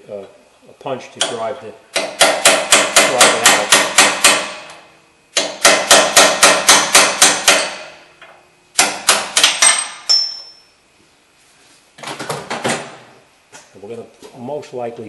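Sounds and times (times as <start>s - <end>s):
hammer striking metal punch: 1.2s - 4.7s, 5.4s - 8.0s, 8.8s - 10.6s
high metallic ringing: 9.6s - 10.9s.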